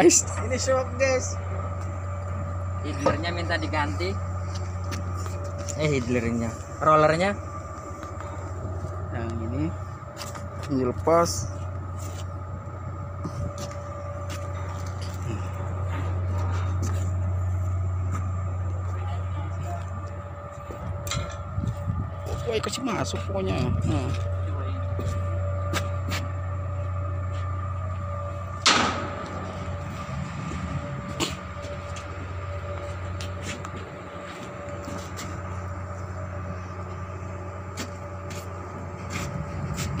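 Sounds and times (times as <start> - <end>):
diesel engine running: 0.0 - 40.0
knocks of steel parts: 28.6 - 29.8
loud metallic clank: 28.6 - 30.1.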